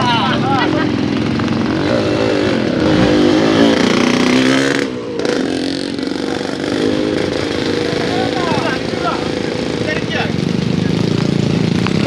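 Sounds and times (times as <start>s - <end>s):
motorcycle engine passing by: 0.0s - 12.0s.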